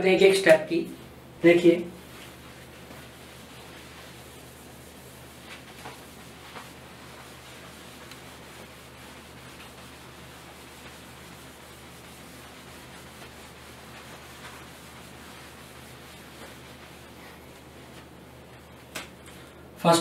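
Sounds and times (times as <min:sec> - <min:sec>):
duster rubbing whiteboard: 0:01.9 - 0:18.9.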